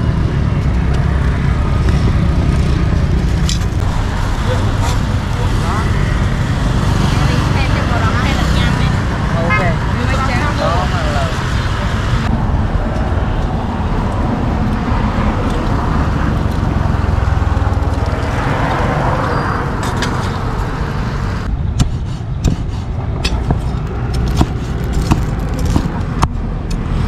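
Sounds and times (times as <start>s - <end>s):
street traffic rumble: 0.0s - 27.0s
cleaver chopping on wooden board: 24.2s - 26.4s.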